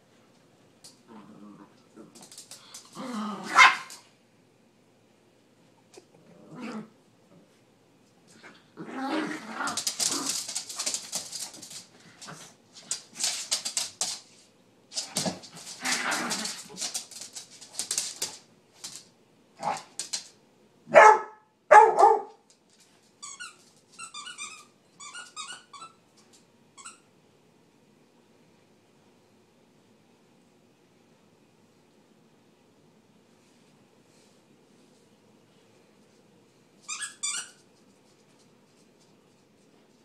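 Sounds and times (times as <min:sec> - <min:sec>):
small dogs growling: 0:01.0 - 0:03.6, 0:06.0 - 0:07.4, 0:08.3 - 0:10.5, 0:15.7 - 0:16.8
dogs barking: 0:20.9 - 0:22.4.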